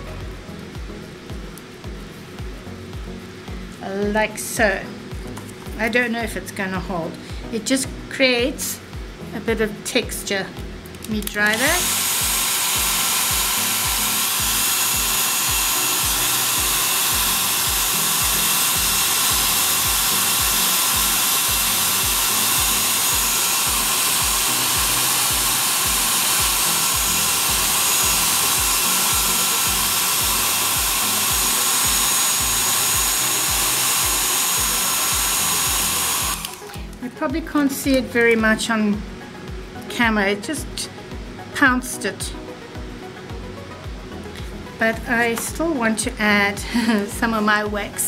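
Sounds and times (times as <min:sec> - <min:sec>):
hair dryer running: 0:10.9 - 0:37.0, 0:42.4 - 0:47.8.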